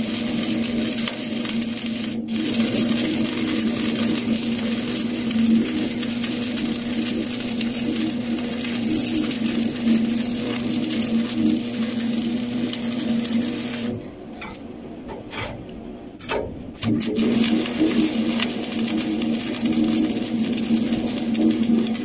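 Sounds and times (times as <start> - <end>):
welding arc buzzing and crackling: 0.0 - 22.0.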